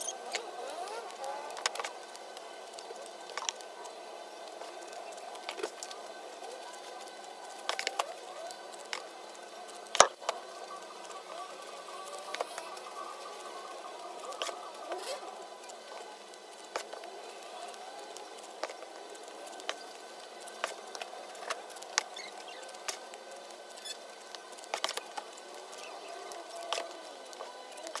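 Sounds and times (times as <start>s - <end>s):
faint steady background noise: 0.0s - 28.0s.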